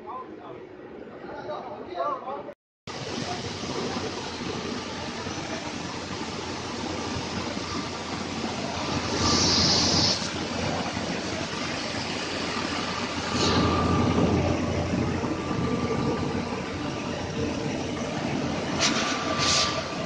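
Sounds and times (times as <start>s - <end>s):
faint steady whine: 2.9s - 20.0s
burst of hiss: 8.5s - 11.0s, 18.8s - 20.0s.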